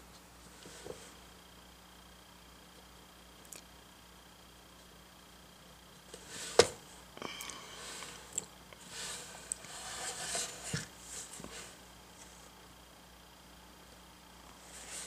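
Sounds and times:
rustling and scraping: 0.5 - 1.2, 6.1 - 6.9, 7.6 - 12.6, 14.5 - 15.0.

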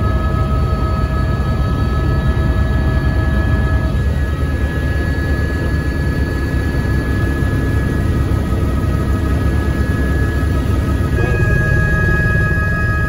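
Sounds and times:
helicopter rotor and engine rumble: 0.0 - 13.0
high whine: 9.0 - 13.0.

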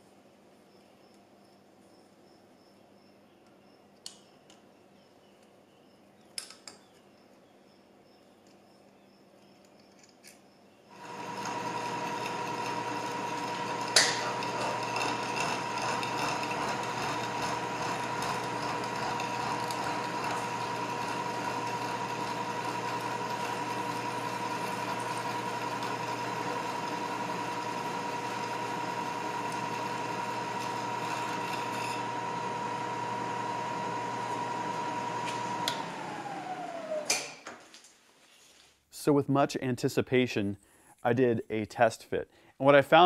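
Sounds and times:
machine tool whining: 10.9 - 37.3.

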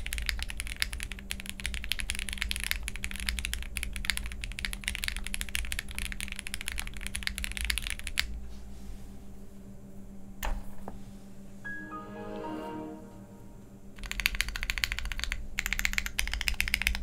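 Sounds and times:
fast keyboard typing: 0.0 - 8.3, 14.0 - 17.0.

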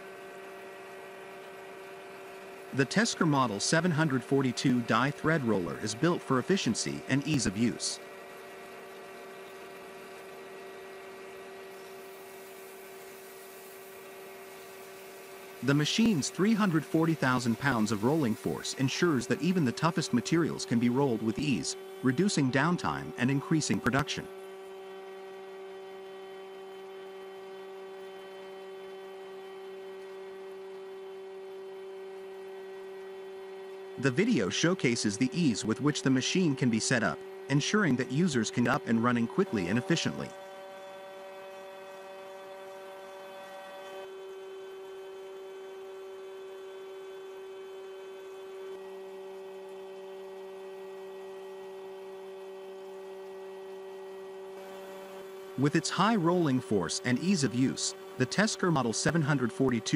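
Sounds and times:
thread roller machine humming: 0.0 - 59.9.

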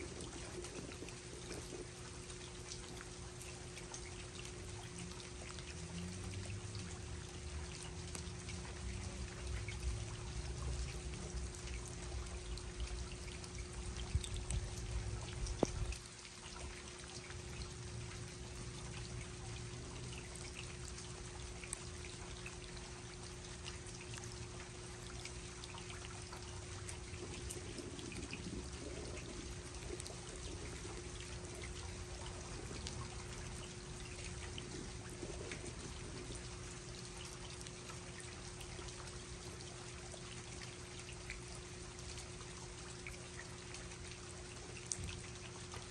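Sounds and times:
constant low hum: 0.0 - 45.9
rain falling: 0.0 - 45.9
water trickling: 0.0 - 45.9.

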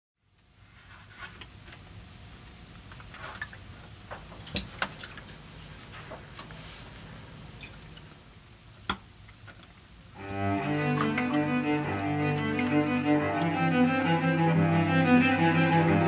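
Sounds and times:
faint low hum: 0.2 - 16.0
sharp drips and taps: 4.5 - 5.3, 7.6 - 8.2
cello music: 10.2 - 16.0.

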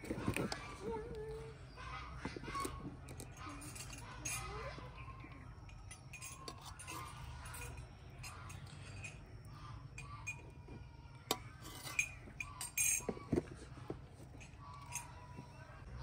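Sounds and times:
metal spoon clinking and scraping: 2.6 - 10.6, 11.2 - 13.3.

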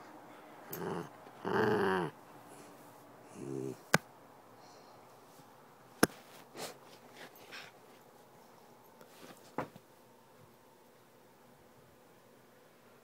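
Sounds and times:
puppy growling: 0.7 - 2.6, 3.3 - 3.9.

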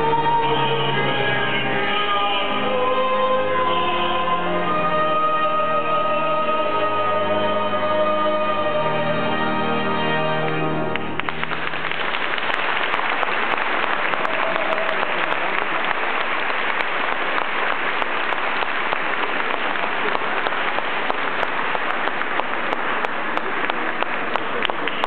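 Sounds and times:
organ chord: 0.0 - 11.6
crowd applauding: 10.4 - 25.0.

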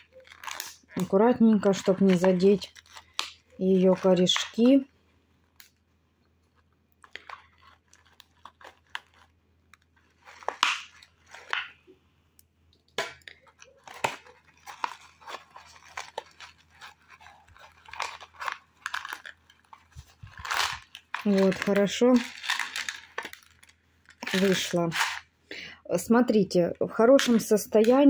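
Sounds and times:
crunching and rustling of moss: 0.0 - 4.8, 13.5 - 25.2
plastic pot clicks and crackles: 0.0 - 4.9, 6.9 - 11.9, 12.7 - 25.2, 27.2 - 28.0.

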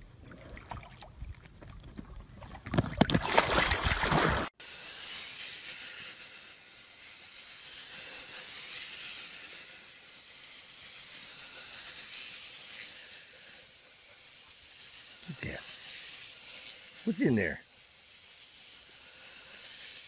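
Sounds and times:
faint steady hiss: 4.6 - 20.0.

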